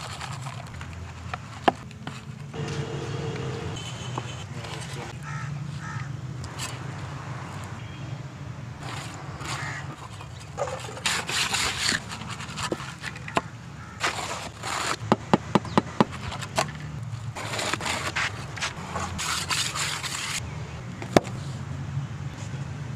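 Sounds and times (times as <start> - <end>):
trowel scraping wet concrete: 8.8 - 13.4, 14.0 - 15.1, 17.3 - 20.4.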